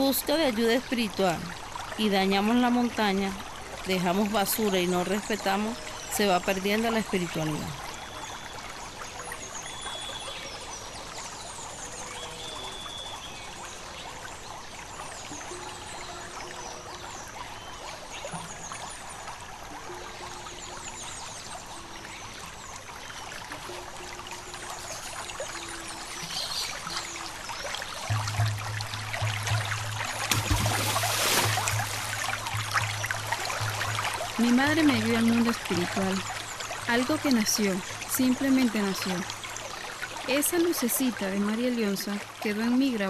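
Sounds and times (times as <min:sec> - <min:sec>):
stream trickling over rocks: 0:00.0 - 0:43.0
low steady hum: 0:23.5 - 0:40.4.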